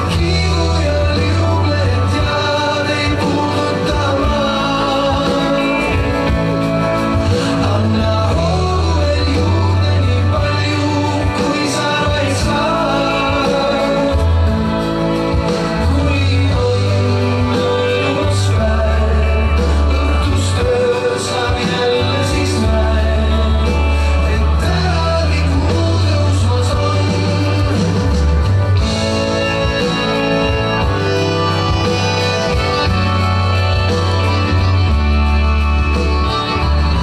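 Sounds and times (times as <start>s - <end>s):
bass line long held notes: 0.0s - 37.0s
person singing: 0.0s - 37.0s.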